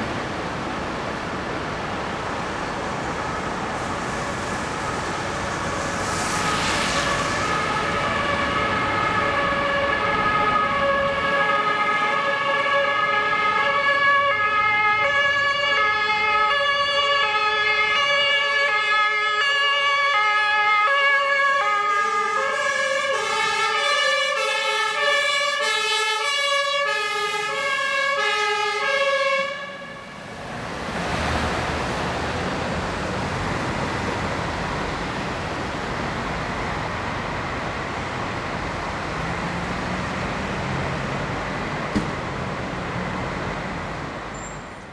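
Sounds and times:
road noise: 0:00.0 - 0:44.9
two-tone siren: 0:05.5 - 0:30.2.

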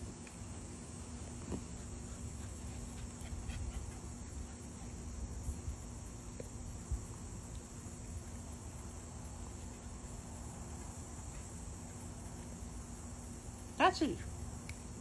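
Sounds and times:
insect chorus chirring: 0:00.0 - 0:15.0.

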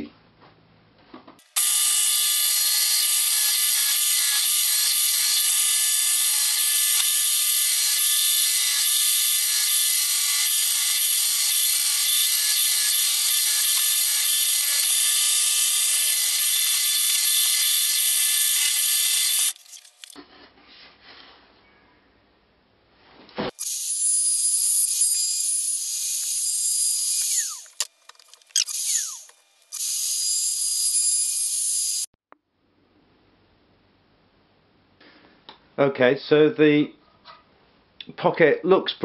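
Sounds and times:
drill press whine: 0:23.6 - 0:32.1.

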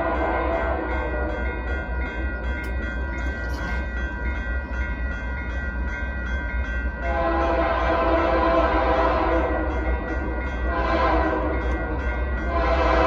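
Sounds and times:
locomotive air horn: 0:00.0 - 0:01.4, 0:07.1 - 0:09.7, 0:10.6 - 0:13.0
crossing warning bell ringing: 0:00.0 - 0:13.0.

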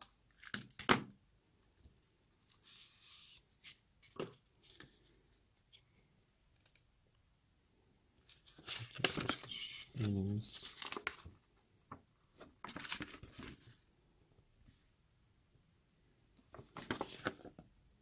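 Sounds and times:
paper rustling: 0:02.4 - 0:05.1, 0:08.2 - 0:11.4, 0:12.3 - 0:13.8, 0:16.5 - 0:17.6.

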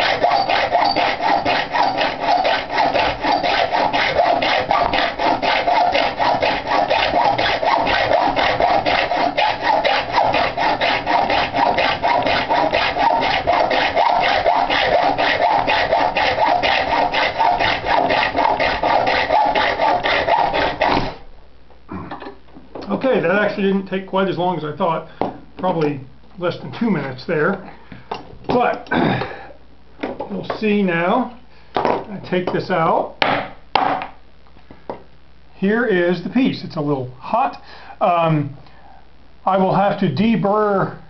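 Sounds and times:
hacksaw cutting metal: 0:00.0 - 0:21.2.

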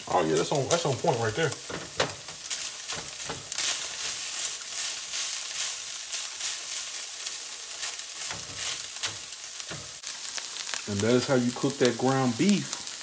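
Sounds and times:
ground beef sizzling: 0:00.0 - 0:13.0
spatula scraping pan: 0:01.6 - 0:07.1, 0:07.7 - 0:10.0.

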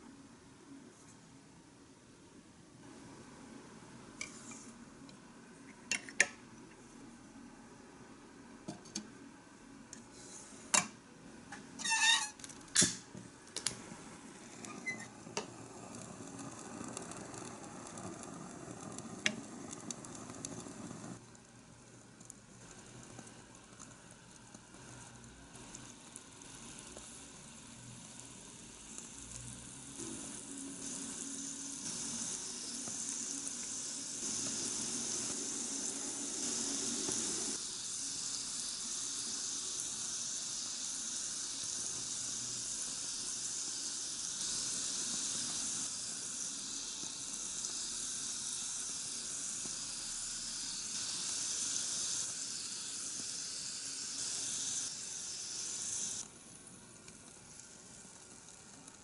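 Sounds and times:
meatballs sizzling in hot oil: 0:11.8 - 0:59.0
oil bubbling: 0:13.4 - 0:54.2.

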